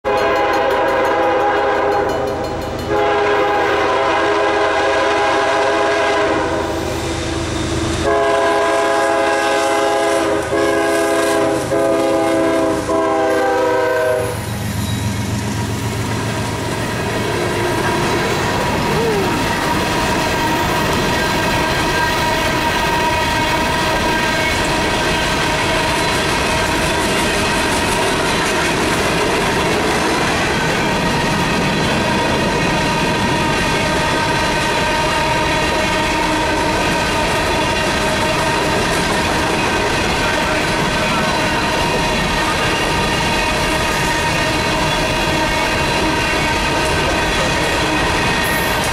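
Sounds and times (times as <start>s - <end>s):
train wheels rolling and clattering: 0.0s - 4.0s, 6.8s - 48.9s
locomotive air horn blasts: 0.0s - 6.9s, 8.0s - 14.5s, 17.2s - 26.0s
diesel engines rumbling: 14.5s - 21.1s.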